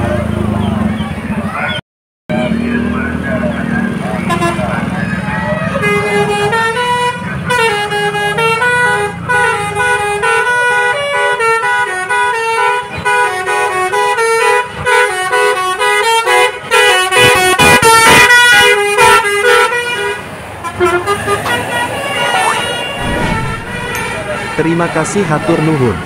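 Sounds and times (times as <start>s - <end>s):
bus horn playing a tune: 4.2s - 4.9s, 5.6s - 26.0s
low engine rumble: 19.9s - 26.0s.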